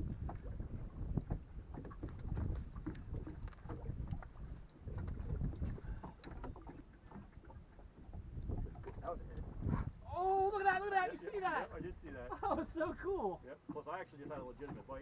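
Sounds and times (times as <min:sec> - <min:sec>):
wind buffeting microphone: 0:00.0 - 0:10.5
water lapping at hull: 0:00.0 - 0:15.0
small knocks and clicks: 0:01.3 - 0:04.3.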